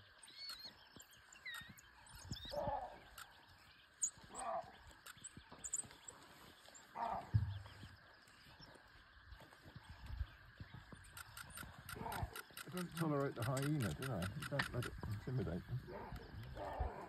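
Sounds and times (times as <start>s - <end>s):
wild dogs calling: 1.4s - 5.3s, 6.3s - 8.9s, 11.1s - 17.0s.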